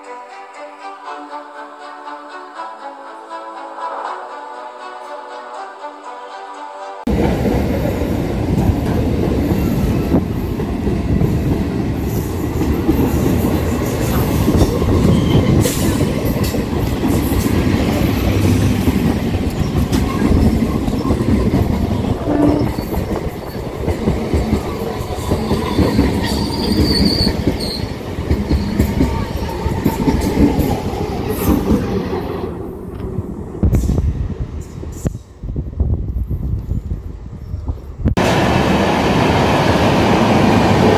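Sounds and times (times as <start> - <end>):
train wheels clattering on rails: 7.1 - 32.2
high-pitched wheel squeal: 22.1 - 23.6, 25.2 - 30.1.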